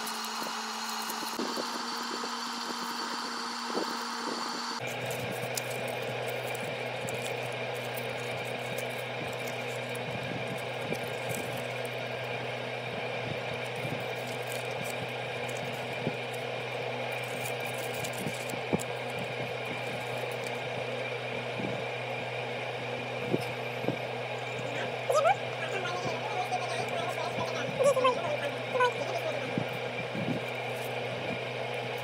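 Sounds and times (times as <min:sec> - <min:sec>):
steady machine hum: 0:00.0 - 0:32.0
paper card rustling: 0:04.8 - 0:12.0.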